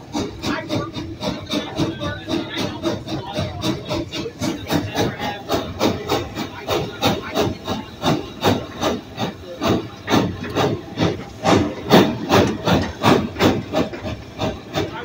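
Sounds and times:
steam hiss: 0:00.0 - 0:15.0
steam locomotive chuffing: 0:00.0 - 0:15.0.

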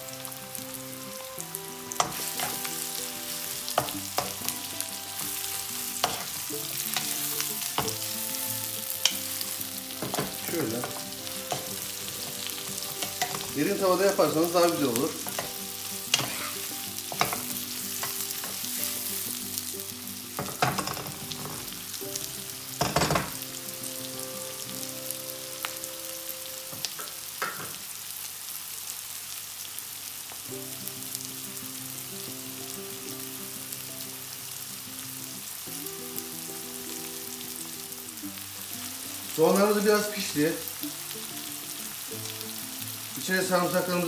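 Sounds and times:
onions sizzling in oil: 0:00.0 - 0:44.0
spatula scraping and knocking pan: 0:15.2 - 0:18.6.

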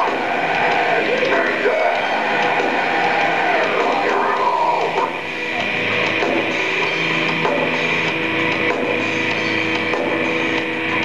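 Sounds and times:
vocalist yelling and singing: 0:00.0 - 0:05.2
live metal band playing: 0:00.0 - 0:11.0.

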